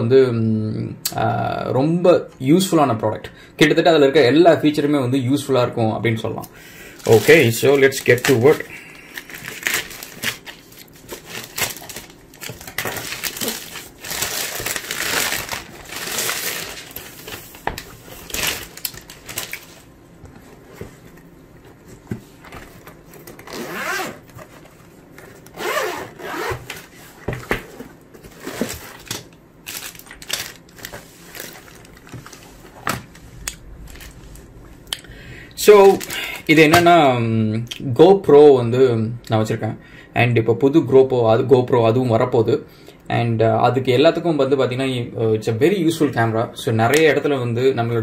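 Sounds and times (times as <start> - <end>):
plastic bags crinkling: 6.8 - 20.0, 28.2 - 34.6, 35.6 - 36.9
plastic packaging crackling: 6.9 - 20.0, 28.2 - 34.6, 35.6 - 36.9
scissors cutting plastic bag: 7.0 - 19.7, 28.4 - 32.4
zippered case opening: 23.2 - 24.7, 25.5 - 26.9.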